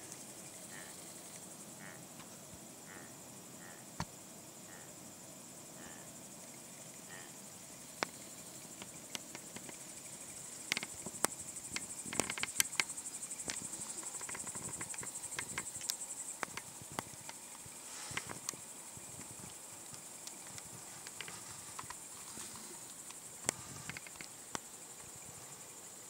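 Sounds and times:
insect chirring: 0:00.0 - 0:26.0
sharp clicks and snaps: 0:23.0 - 0:24.6.

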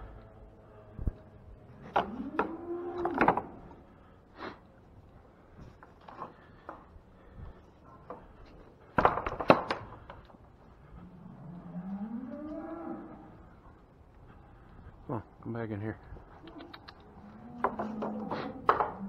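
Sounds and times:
low rising and falling tone: 0:11.0 - 0:13.8
wooden boards knocking: 0:17.6 - 0:19.0.

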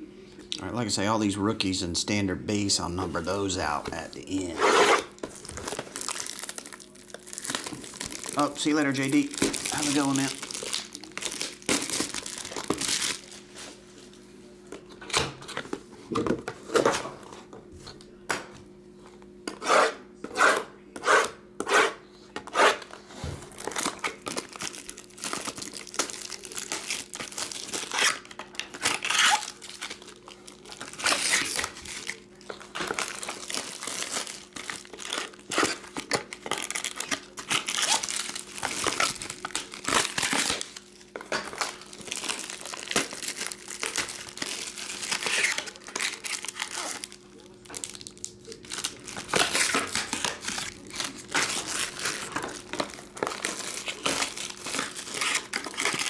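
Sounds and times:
plastic wrapping crinkling and tearing: 0:03.2 - 0:14.2, 0:23.4 - 0:56.0.

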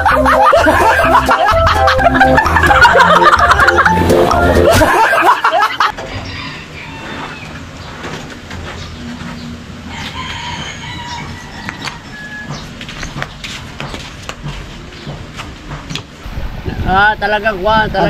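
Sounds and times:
rooster crowing: 0:05.8 - 0:07.7, 0:09.8 - 0:12.8.

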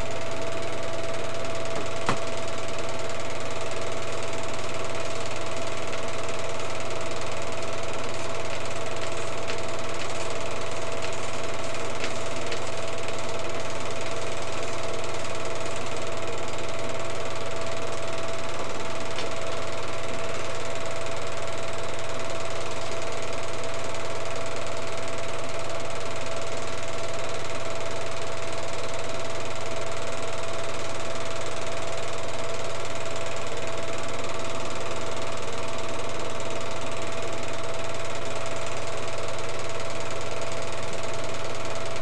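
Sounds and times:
film projector clatter: 0:00.0 - 0:42.0.

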